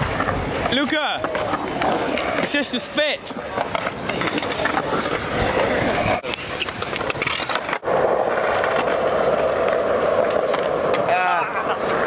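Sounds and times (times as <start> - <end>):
skateboard wheels rolling on concrete: 0.0 - 12.0.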